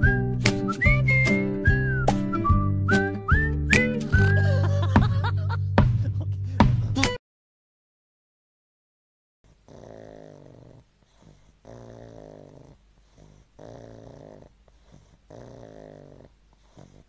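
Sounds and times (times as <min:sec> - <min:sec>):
dog snoring: 0:09.5 - 0:17.0.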